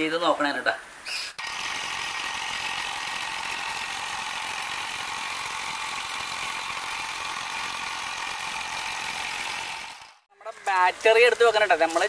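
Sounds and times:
electric motor running with high whir: 1.4 - 10.2.

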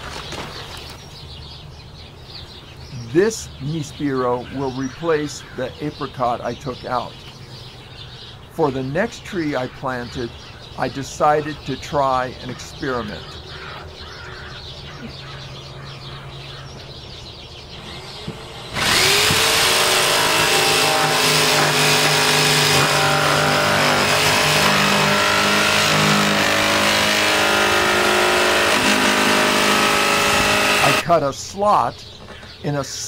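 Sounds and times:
electric saw cutting plastic: 17.8 - 31.0.

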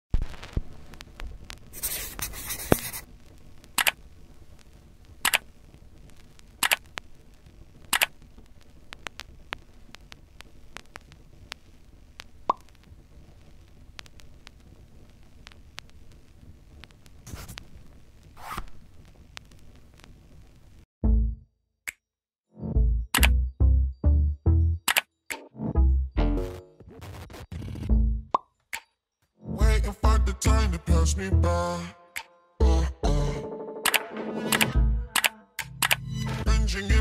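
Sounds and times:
scratchy rustle: 1.8 - 3.1, 17.2 - 17.7
sharp clicks: 3.8 - 4.0, 5.2 - 5.5, 6.6 - 7.0, 7.9 - 8.2, 23.2 - 23.4, 24.9 - 25.5, 33.9 - 36.0.

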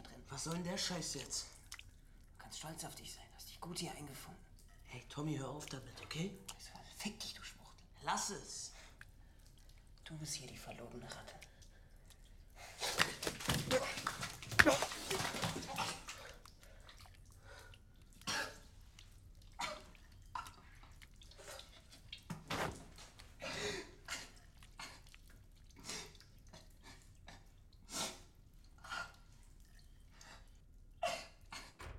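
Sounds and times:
water drips: 0.0 - 31.9
scuffle: 12.8 - 16.0.

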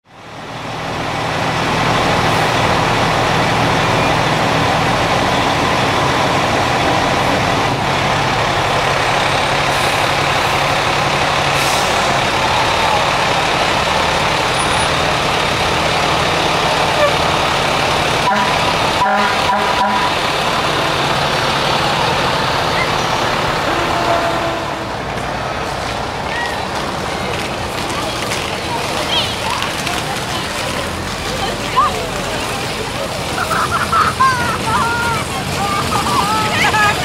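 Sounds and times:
fire engine diesel engine running: 0.0 - 37.0.

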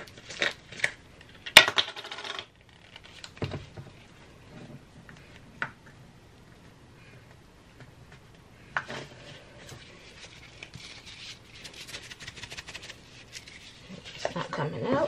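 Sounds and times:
small crackles: 2.6 - 3.4.

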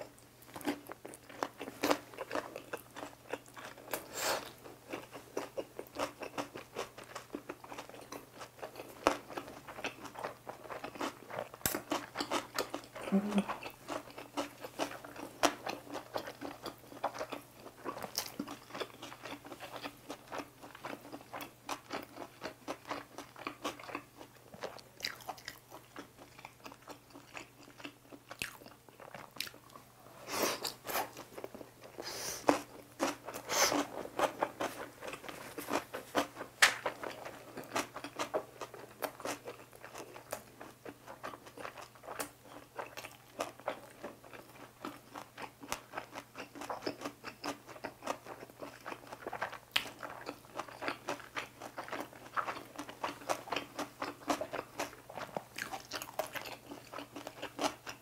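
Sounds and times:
close chewing with wet mouth clicks: 0.1 - 29.8, 30.6 - 58.0.

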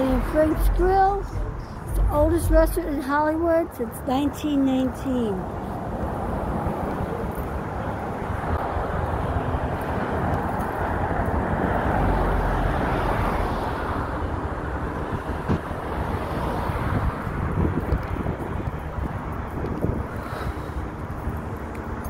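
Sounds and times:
traffic rush: 0.0 - 22.0
deep rumble: 0.1 - 3.0.

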